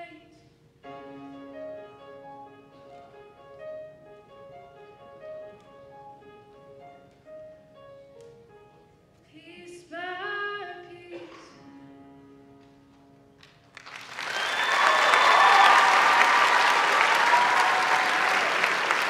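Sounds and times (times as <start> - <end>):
audience applauding loudly: 13.4 - 19.0.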